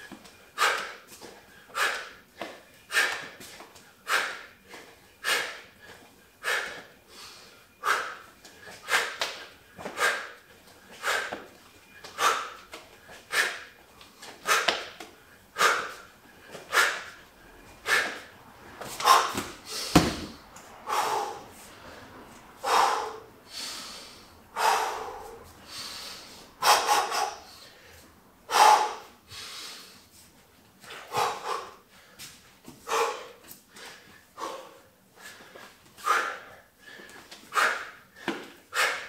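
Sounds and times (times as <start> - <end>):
man breathing heavily: 0.0 - 39.0
dull thump: 19.4 - 20.4.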